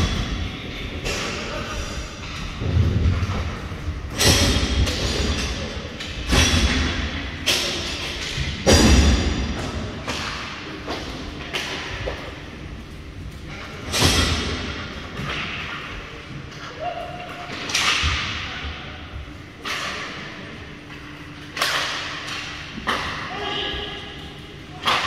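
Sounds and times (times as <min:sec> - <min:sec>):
puck and sticks hitting boards: 0:04.2 - 0:12.4, 0:14.0 - 0:18.8, 0:19.6 - 0:20.3, 0:20.9 - 0:23.5, 0:24.8 - 0:25.0.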